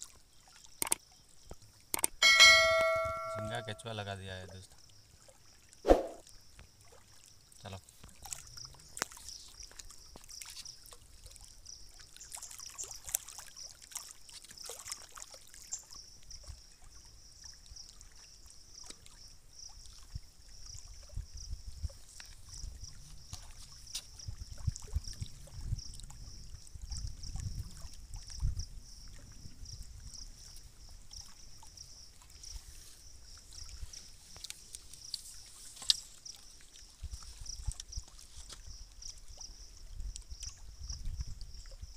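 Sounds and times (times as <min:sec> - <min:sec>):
small clicks: 0:00.8 - 0:01.0, 0:01.9 - 0:02.2
small waves lapping on rocks: 0:06.8 - 0:16.1.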